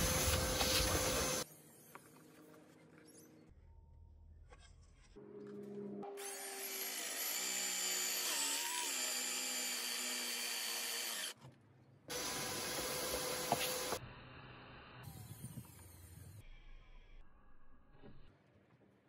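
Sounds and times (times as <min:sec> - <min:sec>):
power drill boring into wood: 0:06.2 - 0:11.4, 0:12.1 - 0:14.0.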